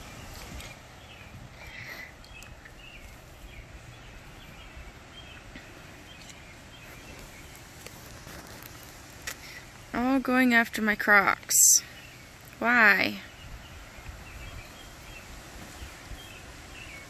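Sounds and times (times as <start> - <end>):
wind noise on microphone: 13.3 - 17.0.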